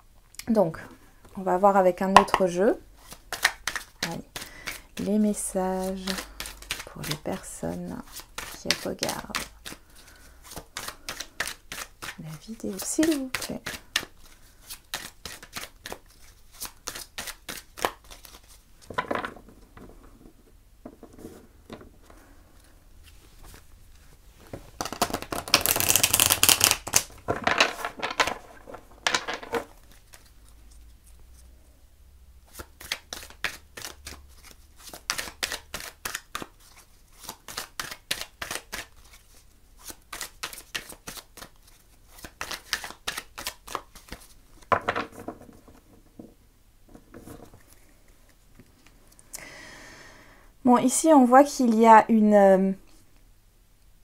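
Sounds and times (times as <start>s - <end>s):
cards being shuffled: 2.3s - 19.3s, 22.6s - 31.5s, 32.4s - 45.9s.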